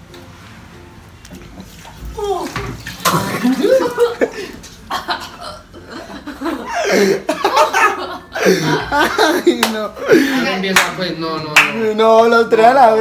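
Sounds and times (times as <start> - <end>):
people laughing: 3.2 - 10.7.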